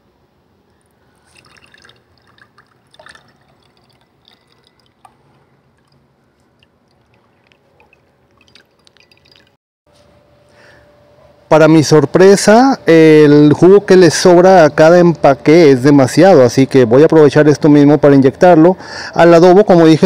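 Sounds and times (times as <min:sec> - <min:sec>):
liquid dribbling into a glass: 0:00.8 - 0:09.6.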